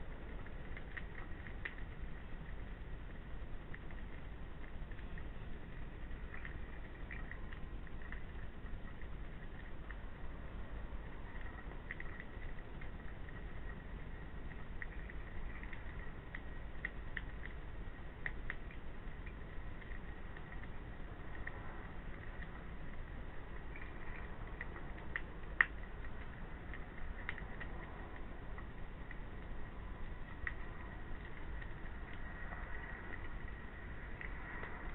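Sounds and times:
steady low hiss: 0:00.0 - 0:34.9.

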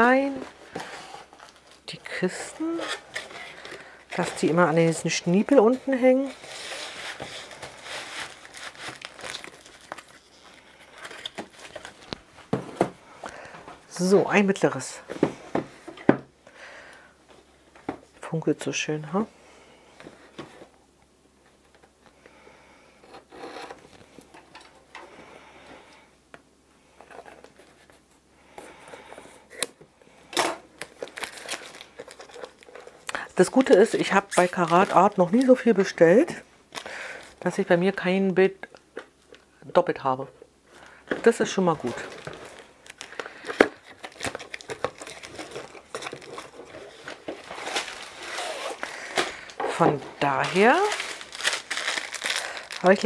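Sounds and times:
plastic packaging crinkling: 0:00.0 - 0:12.5, 0:30.4 - 0:37.6, 0:40.8 - 0:53.0
cardboard box being opened: 0:43.8 - 0:52.8.

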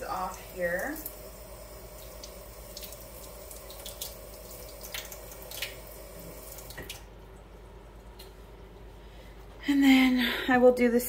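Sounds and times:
faucet running into sink: 0:00.0 - 0:07.0.

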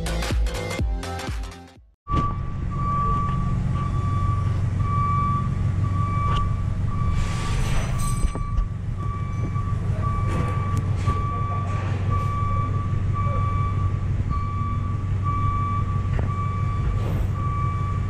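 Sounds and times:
music: 0:00.0 - 0:01.9
heavy vehicle engine running: 0:02.1 - 0:18.0
reversing alarm beeping: 0:02.1 - 0:18.0.

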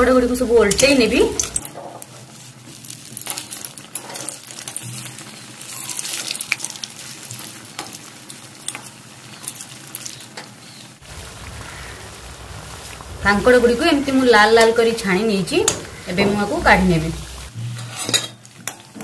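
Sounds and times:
food sizzling in hot oil: 0:00.2 - 0:18.9
metal spatula scraping pan: 0:15.6 - 0:18.4.

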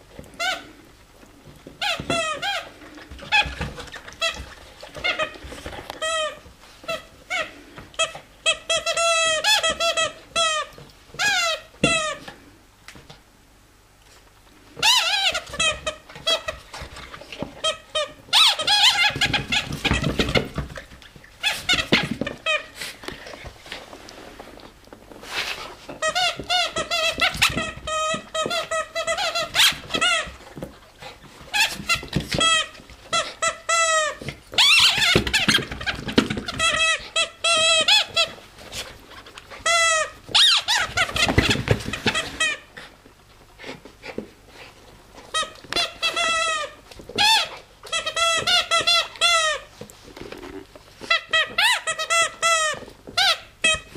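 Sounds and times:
squeaky toy squeaking: 0:08.0 - 0:12.2, 0:14.8 - 0:16.6, 0:17.6 - 0:20.3, 0:26.0 - 0:30.3, 0:31.5 - 0:38.3, 0:39.6 - 0:42.7, 0:45.3 - 0:49.7, 0:51.1 - 0:53.9.

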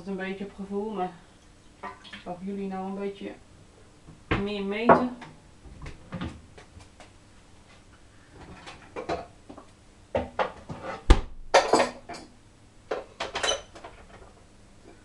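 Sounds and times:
sharp thump: 0:11.1 - 0:11.6
bowls and utensils clattering: 0:11.6 - 0:12.3, 0:13.0 - 0:14.2.

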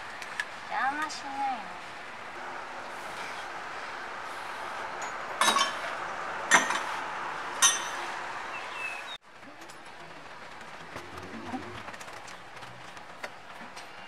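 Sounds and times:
steady hiss: 0:00.0 - 0:09.2
ringing metal clanks: 0:05.0 - 0:05.8, 0:07.6 - 0:08.0.

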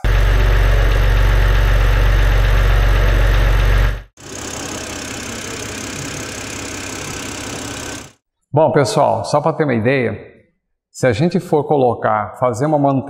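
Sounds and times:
car engine idling with knocking clatter: 0:00.0 - 0:08.2.

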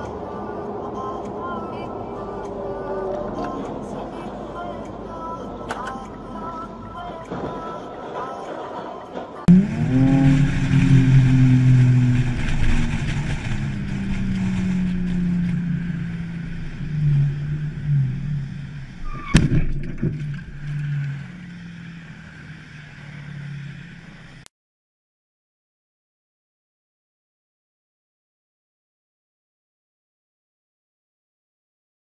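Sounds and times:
vehicle engine humming: 0:00.0 - 0:24.5.

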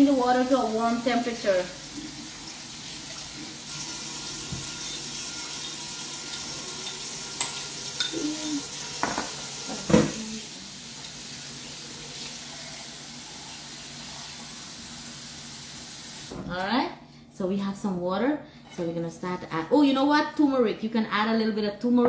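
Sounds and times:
kitchen tap running into sink: 0:00.0 - 0:16.3
dishes and utensils clinking: 0:04.5 - 0:10.2.

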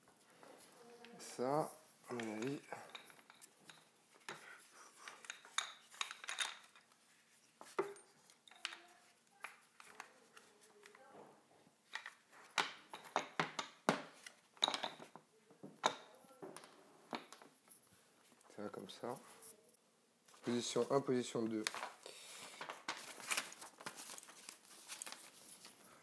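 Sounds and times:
plastic and metal parts clattering: 0:02.1 - 0:08.9, 0:11.9 - 0:15.2.

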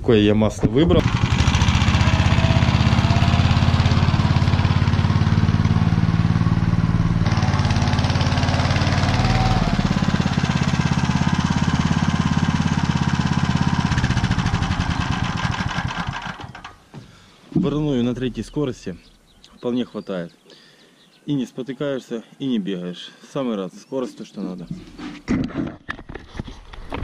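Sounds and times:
walk-behind tractor engine running: 0:01.0 - 0:16.8.

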